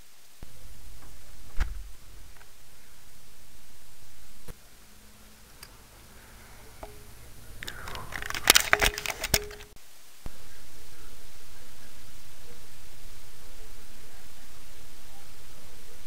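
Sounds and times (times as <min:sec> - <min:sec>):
steady hiss: 0:00.0 - 0:16.0
sharp clicks and knocks: 0:06.8 - 0:09.8
camera handling rustling: 0:07.6 - 0:09.7.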